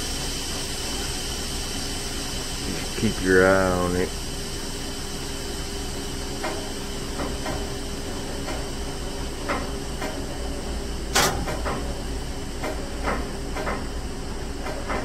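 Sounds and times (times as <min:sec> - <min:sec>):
train brakes hissing: 0:00.0 - 0:14.8.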